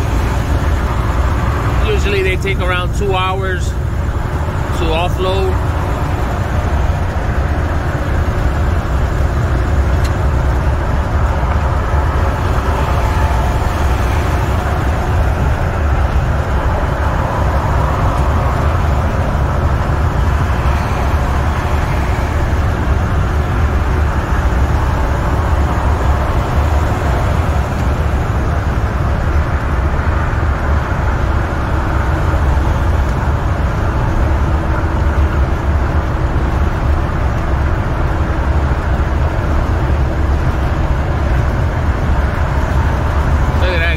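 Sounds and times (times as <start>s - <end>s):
road rumble: 0.0s - 43.9s
truck diesel engine drone: 0.0s - 43.9s.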